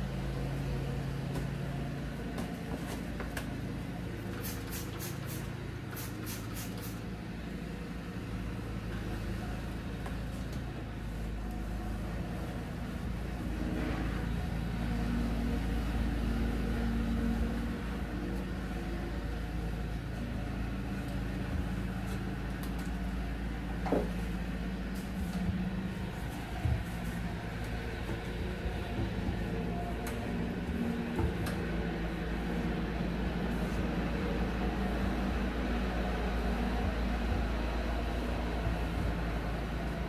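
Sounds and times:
low mechanical hum: 0:00.0 - 0:40.0
spray bottle squirts: 0:04.4 - 0:07.0.

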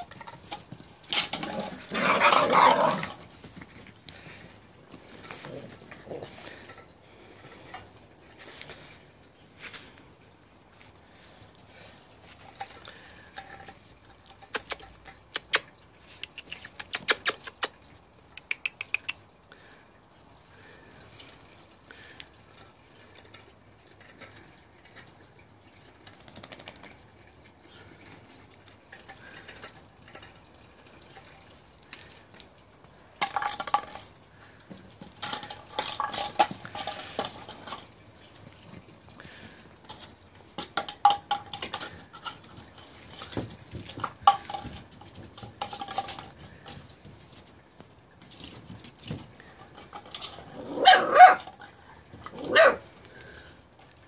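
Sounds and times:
puppies scuffling: 0:00.0 - 0:15.2, 0:23.9 - 0:54.0
puppy claws clicking on paving: 0:12.5 - 0:19.3.

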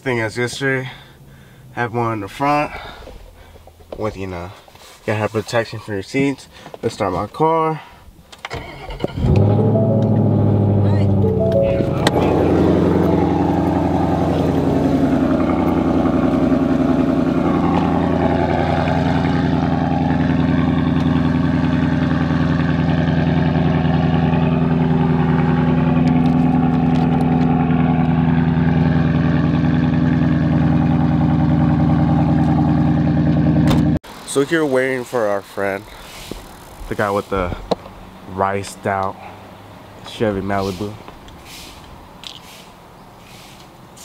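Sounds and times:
car engine idling: 0:08.8 - 0:34.3.

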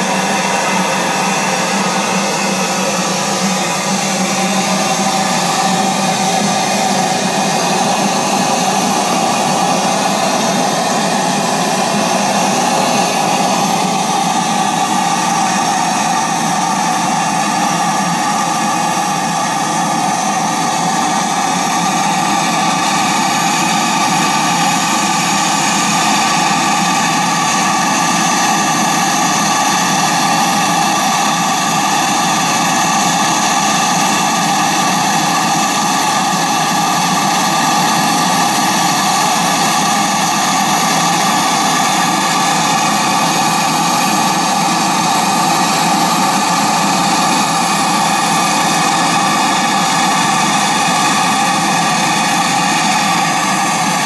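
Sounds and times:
steam engine hissing: 0:00.0 - 0:54.0.

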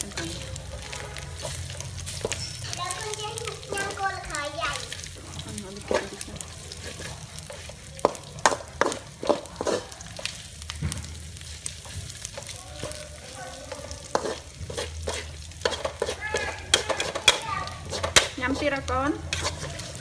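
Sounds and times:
metal spatula scraping a wok: 0:00.0 - 0:04.0, 0:04.8 - 0:10.4, 0:11.4 - 0:20.0
hot oil sizzling: 0:00.0 - 0:20.0.

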